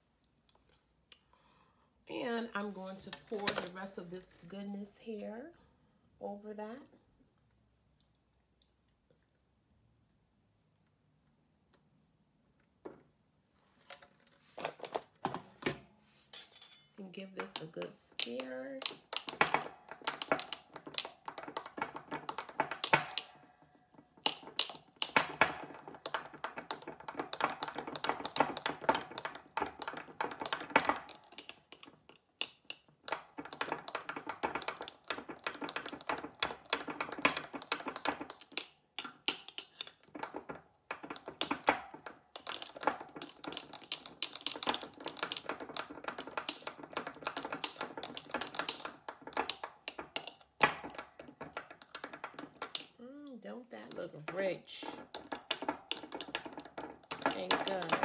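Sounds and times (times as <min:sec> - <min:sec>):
metal utensil clinking in glass jar: 0:16.4 - 0:17.6.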